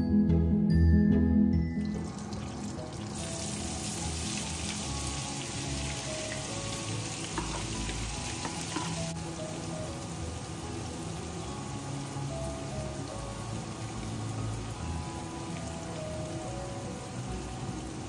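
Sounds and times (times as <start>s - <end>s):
butter and oil sizzling in a pan: 1.9s - 18.0s
spatula stirring onion: 5.9s - 9.2s.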